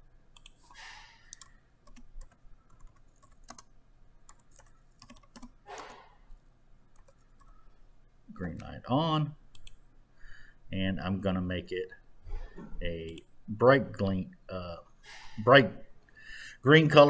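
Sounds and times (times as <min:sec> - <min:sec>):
keyboard keys clicking: 0:01.3 - 0:03.7, 0:04.3 - 0:05.9.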